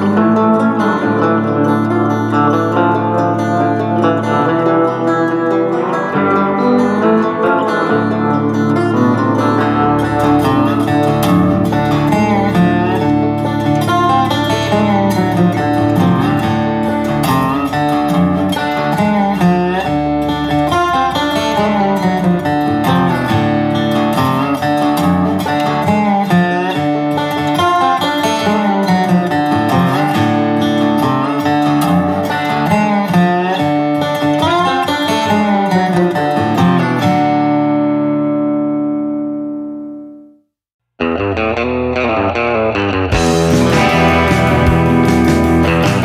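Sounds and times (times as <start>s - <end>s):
guitar instrumental music: 0.0s - 46.0s.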